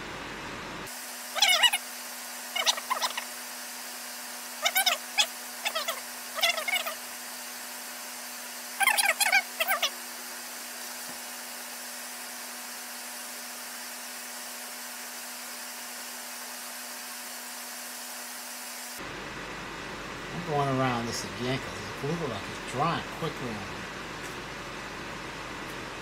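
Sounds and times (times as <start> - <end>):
fan and vent hood whirring: 0.0 - 26.0
high squeaky chirps: 1.4 - 1.8, 2.6 - 3.3, 4.6 - 7.0, 8.8 - 10.0.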